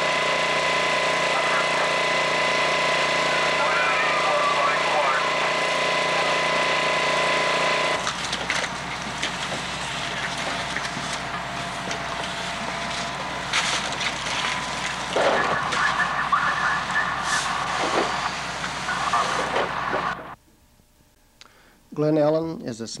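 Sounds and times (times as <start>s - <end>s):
fire rushing hiss: 17.1s - 20.2s.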